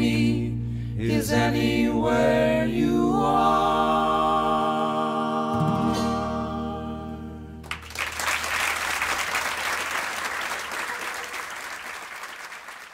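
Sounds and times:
voices singing held chord: 0.0s - 7.6s
audience applause: 7.6s - 12.9s.

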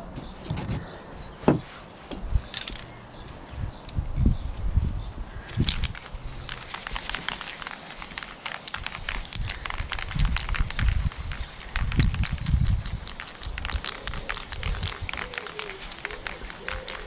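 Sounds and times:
spray paint can hissing: 5.5s - 17.0s.

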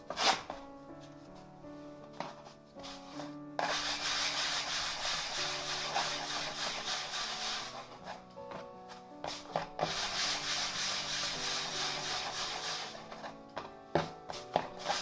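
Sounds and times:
soft background music: 0.0s - 15.0s
bread dough rubbing and scraping: 0.1s - 0.5s, 2.8s - 8.2s, 9.3s - 13.3s, 14.5s - 15.0s.

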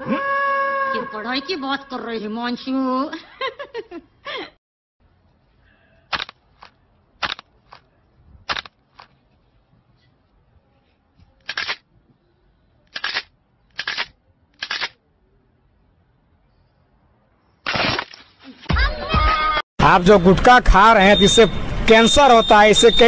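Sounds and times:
sharp clicks: 6.1s - 7.9s, 8.5s - 9.1s, 11.4s - 11.8s, 12.9s - 15.0s.

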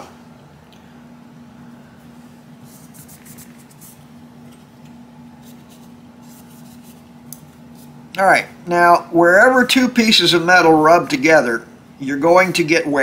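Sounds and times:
cloth rubbing on metal: 2.6s - 4.1s.

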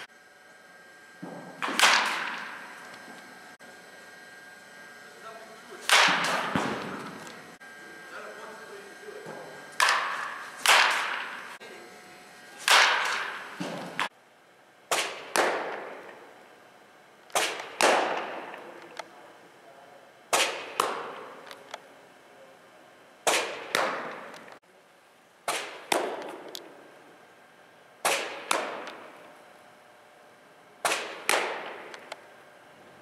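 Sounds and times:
baseball smacking into mitt: 1.2s - 2.7s, 5.9s - 7.2s, 9.8s - 11.4s, 12.6s - 14.1s, 14.9s - 16.1s, 17.3s - 18.6s, 23.3s - 24.4s, 25.5s - 26.6s, 28.0s - 29.1s, 30.8s - 32.1s
bat cracking on ball: 1.2s - 3.3s, 5.8s - 7.4s, 9.7s - 11.6s, 12.6s - 14.1s, 14.9s - 16.3s, 17.2s - 19.0s, 20.3s - 21.7s, 23.2s - 24.6s, 25.4s - 26.8s, 28.0s - 29.3s, 30.8s - 32.2s.

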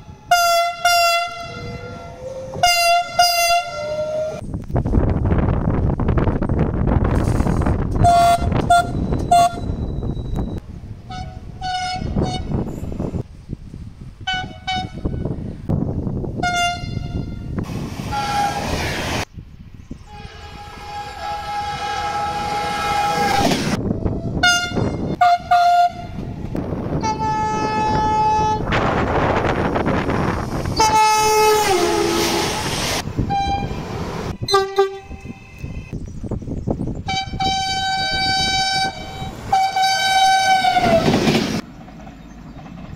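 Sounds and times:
passing trains rushing: 0.0s - 42.9s
train horn toots and blasts: 0.1s - 4.4s, 7.9s - 9.8s, 11.1s - 12.7s, 14.2s - 15.3s, 16.4s - 18.7s, 20.1s - 26.3s, 26.9s - 28.7s, 30.8s - 36.0s, 37.1s - 41.2s.

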